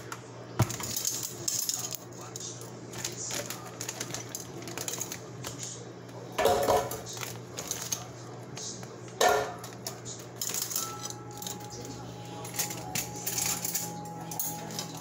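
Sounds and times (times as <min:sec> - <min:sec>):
plastic bag crinkling: 0:02.9 - 0:05.7, 0:06.4 - 0:08.9.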